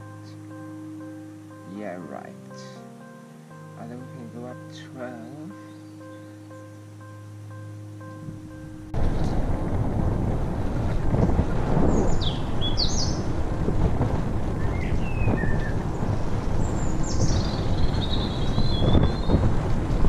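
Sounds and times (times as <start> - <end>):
birds calling: 5.1 - 7.2, 11.8 - 13.3, 14.6 - 19.5
wind rumbling on microphone: 8.1 - 20.0.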